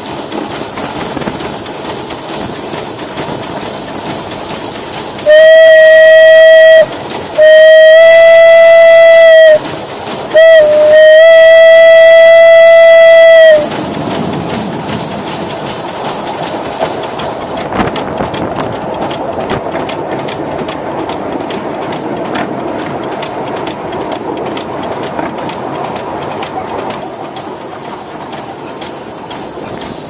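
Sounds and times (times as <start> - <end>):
locomotive steam hiss: 0.0 - 19.2, 24.9 - 30.0
wheels clicking over track: 0.0 - 30.0
steam whistle: 5.2 - 14.0.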